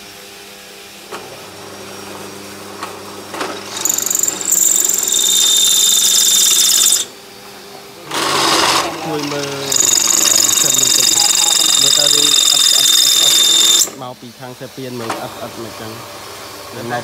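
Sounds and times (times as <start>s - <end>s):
drill press motor humming: 1.0s - 17.0s
drill bit screeching in steel: 3.7s - 7.2s, 8.2s - 14.0s.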